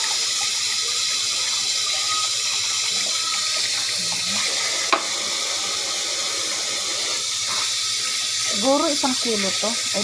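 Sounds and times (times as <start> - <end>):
tap water splashing on metal: 4.7 - 5.3.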